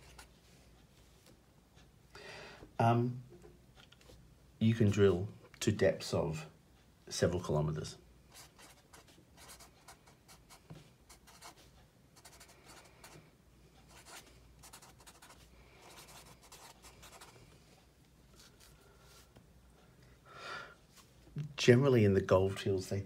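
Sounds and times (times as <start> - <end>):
marker scratching on paper: 8.3 - 13.2, 13.9 - 17.3.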